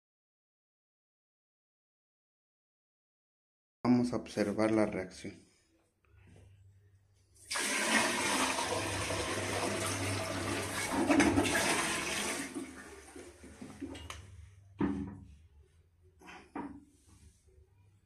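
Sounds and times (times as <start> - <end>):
water pouring into toilet bowl: 7.4 - 14.0.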